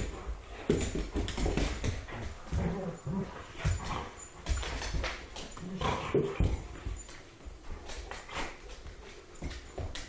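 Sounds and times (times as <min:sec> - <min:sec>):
paws knocking on wooden floor: 0:00.0 - 0:03.0
dogs scuffling: 0:00.0 - 0:10.0.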